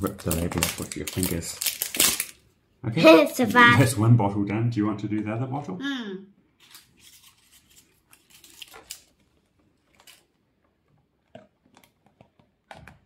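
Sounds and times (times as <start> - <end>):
plastic bottle crinkling: 0.0 - 2.5, 6.6 - 13.0.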